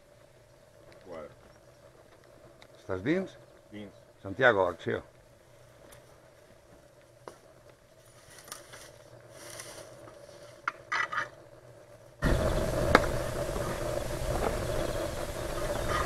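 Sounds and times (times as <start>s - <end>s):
brush scraping and rustling: 8.0s - 11.3s
loud steady rushing noise: 12.2s - 16.0s.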